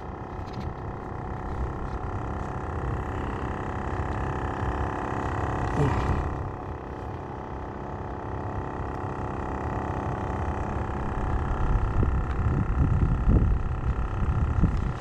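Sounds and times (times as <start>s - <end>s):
engine hum: 0.0s - 15.0s
wind buffeting microphone: 10.2s - 15.0s.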